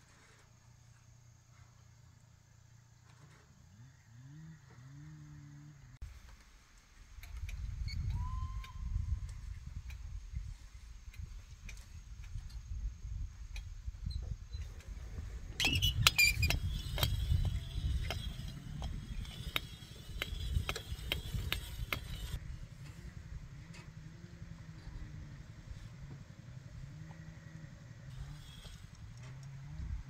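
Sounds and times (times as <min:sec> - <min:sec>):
low steady rumble: 0:12.5 - 0:30.0
metal pulley squealing and clicking: 0:15.6 - 0:22.4.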